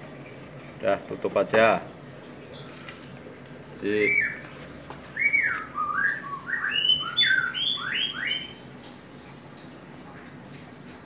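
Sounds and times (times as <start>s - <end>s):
lovebird chirping: 4.0s - 4.5s, 5.1s - 8.6s.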